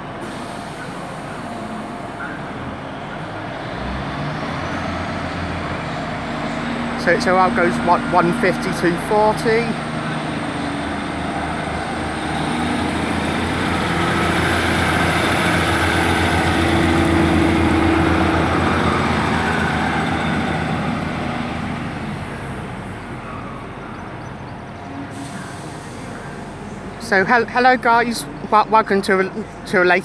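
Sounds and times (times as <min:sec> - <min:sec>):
diesel train pulling away: 0:00.0 - 0:30.0.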